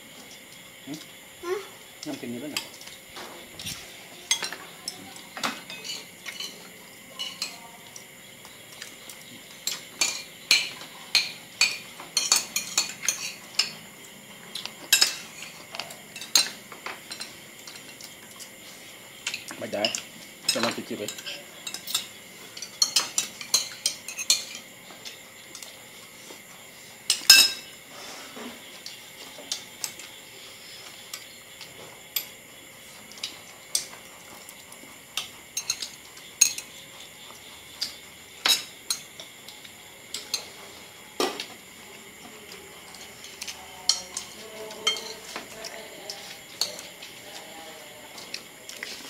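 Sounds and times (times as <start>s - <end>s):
cutlery clinking on ceramic plates: 4.3s - 7.6s, 9.6s - 13.8s, 14.5s - 18.1s, 19.2s - 24.6s, 27.1s - 27.8s, 35.5s - 36.7s, 37.8s - 39.3s, 42.8s - 47.0s.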